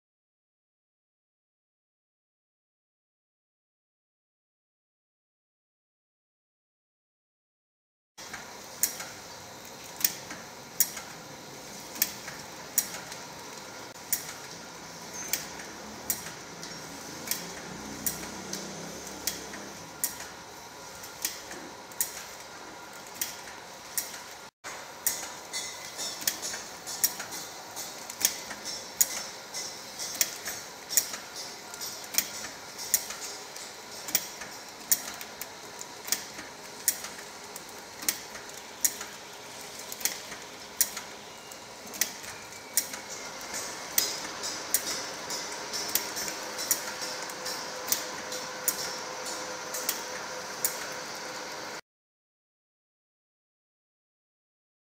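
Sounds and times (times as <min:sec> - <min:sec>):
machine clicks: 0:08.2 - 0:09.2, 0:09.8 - 0:11.2, 0:11.8 - 0:20.4, 0:21.0 - 0:51.1
packing machine hum: 0:08.2 - 0:51.8.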